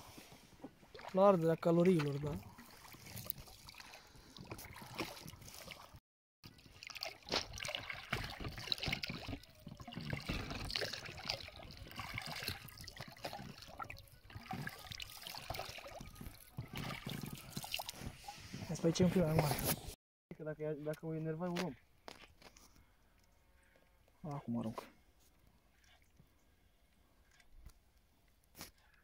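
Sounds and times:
oar splashing through water: 0.2s - 18.4s.

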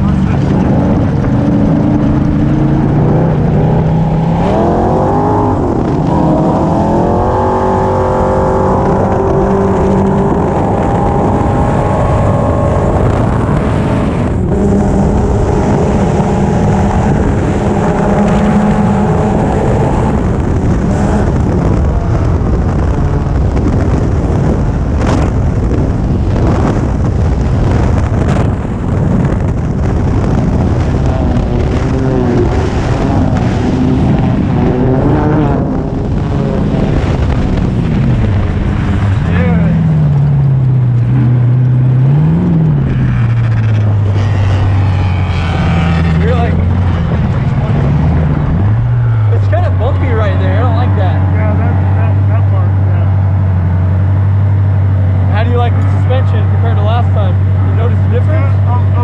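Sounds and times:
engine revving hard: 0.0s - 22.0s, 41.3s - 53.7s
rush of wind: 0.0s - 59.0s.

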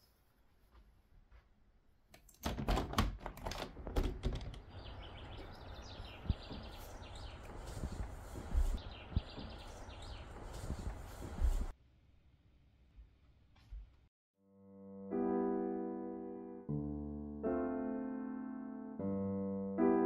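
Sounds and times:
outdoor background noise: 3.5s - 14.1s
birds chirping: 4.6s - 11.7s.

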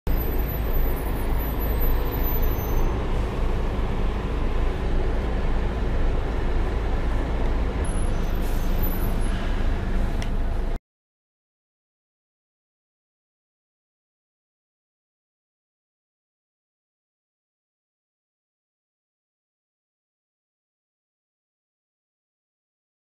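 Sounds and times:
diesel bus engine idling: 0.1s - 10.8s.

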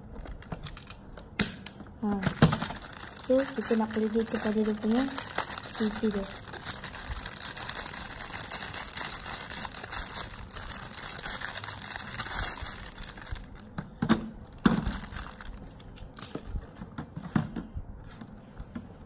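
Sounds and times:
plastic bag crinkling: 2.1s - 13.7s, 14.4s - 16.7s.

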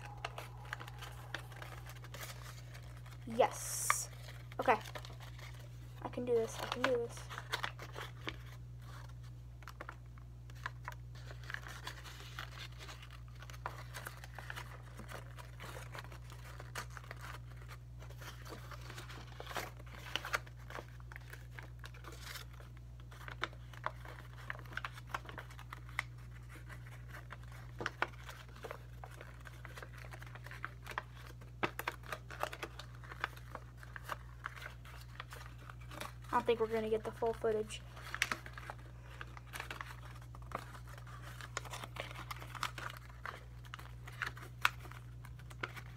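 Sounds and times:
steady low hum: 0.0s - 10.5s
paper rustling and crinkling: 0.0s - 45.9s.

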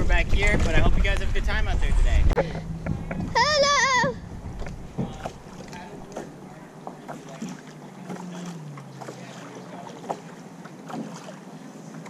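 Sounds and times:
water lapping: 0.0s - 12.0s
paddle knocking on hull: 2.6s - 11.4s
paddle splashes: 2.6s - 12.0s.

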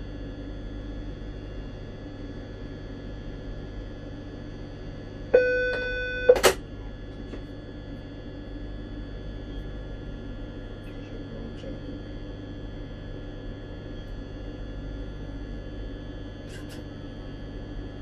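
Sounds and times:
train cab hum: 5.3s - 6.6s
electronic beep: 5.4s - 6.4s.

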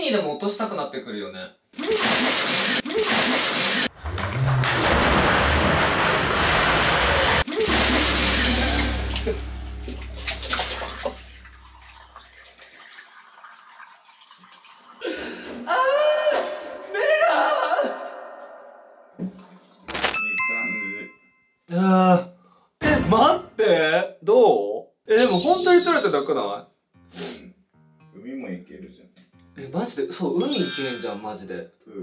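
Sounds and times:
water spraying and splashing: 1.8s - 3.9s, 4.5s - 15.0s
person crying out: 15.0s - 18.4s.

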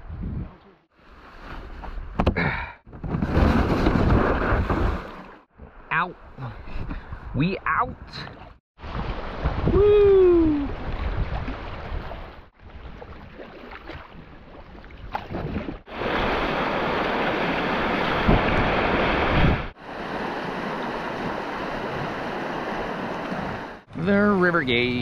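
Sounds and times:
wind on microphone: 0.0s - 0.7s, 6.4s - 13.4s, 14.8s - 23.8s
person shouting woo: 9.7s - 10.8s
river water rushing: 15.9s - 23.8s.

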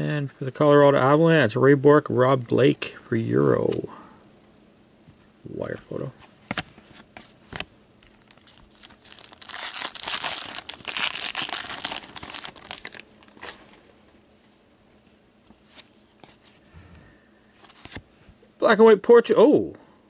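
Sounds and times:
wrapper tearing and crinkling: 8.1s - 13.6s.

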